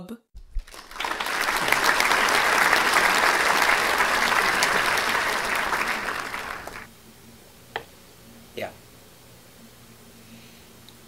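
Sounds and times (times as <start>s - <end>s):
crowd applauding: 0.4s - 6.9s.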